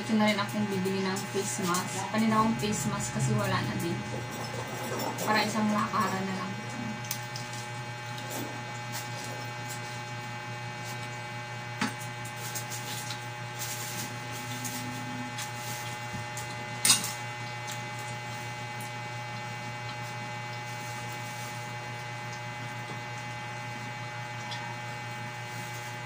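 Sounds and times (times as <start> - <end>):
electrical hum: 0.0 - 26.0.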